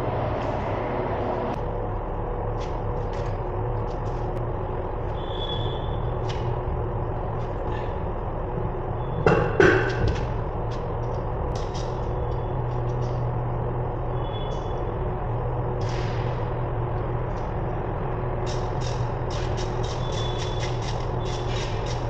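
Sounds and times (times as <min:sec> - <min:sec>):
low machinery hum: 0:00.0 - 0:22.0
loud metal clanks: 0:09.2 - 0:10.4.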